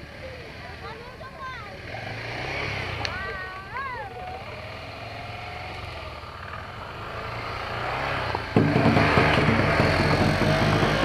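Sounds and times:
motorcycle engine running: 0:01.7 - 0:11.0
loud background music: 0:08.6 - 0:11.0.

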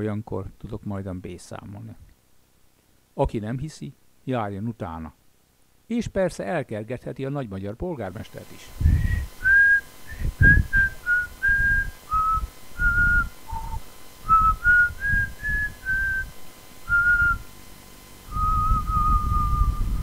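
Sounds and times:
breath puffs: 0:08.8 - 0:09.4
person whistling slow melody: 0:09.0 - 0:16.3, 0:16.9 - 0:17.5, 0:18.3 - 0:20.0.

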